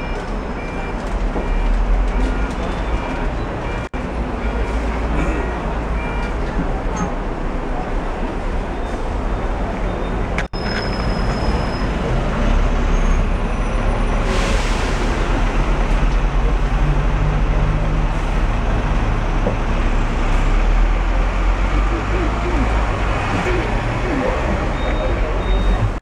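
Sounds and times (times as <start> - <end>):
street traffic: 0.0 - 26.0
tram rumbling: 0.0 - 26.0.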